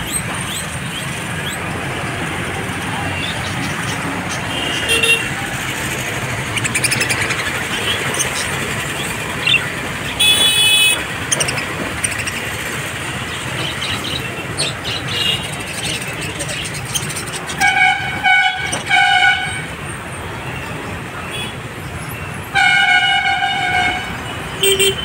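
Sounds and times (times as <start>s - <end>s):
budgerigars chirping: 0.0s - 1.7s, 2.9s - 4.9s, 5.7s - 10.2s, 11.2s - 17.8s
steady traffic noise: 0.0s - 25.0s
vehicle horn toot: 4.5s - 5.3s, 10.2s - 11.1s, 17.6s - 19.7s, 22.5s - 25.0s.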